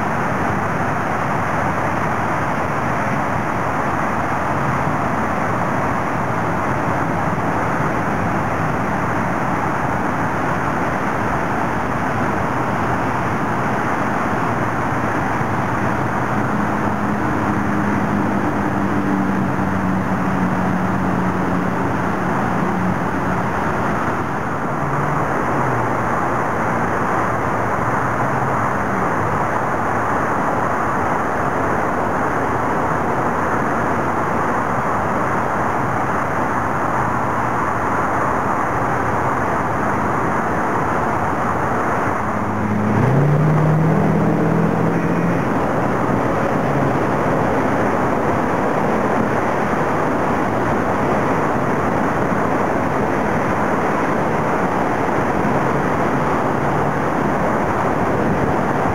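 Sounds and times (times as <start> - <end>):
road traffic roar: 0.0 - 58.9
engine rising in pitch: 41.2 - 49.2.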